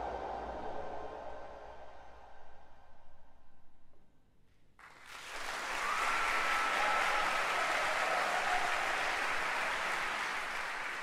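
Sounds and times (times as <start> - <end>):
audience applause: 4.8 - 11.0.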